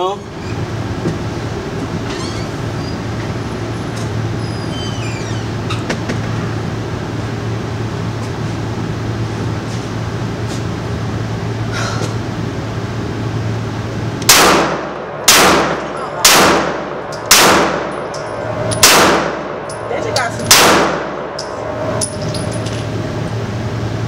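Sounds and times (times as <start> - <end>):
pistol shots: 14.3 - 18.0, 18.7 - 19.6, 20.5 - 21.4.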